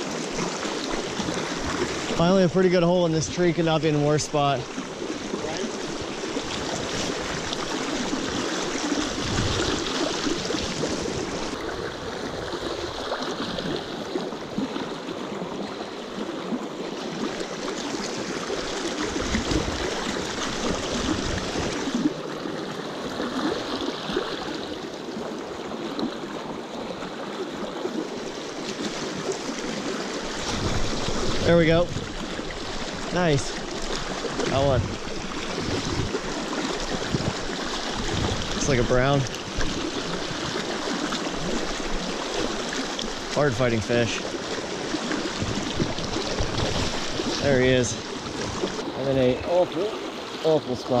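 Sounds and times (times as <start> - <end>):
stream flowing over rocks: 0.0 - 51.0.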